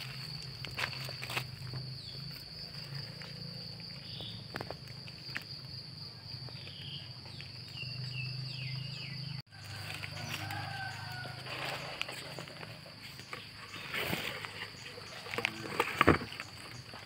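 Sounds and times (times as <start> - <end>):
footsteps in dry leaves: 0.0 - 2.6, 9.5 - 15.3
insects trilling: 0.0 - 17.0.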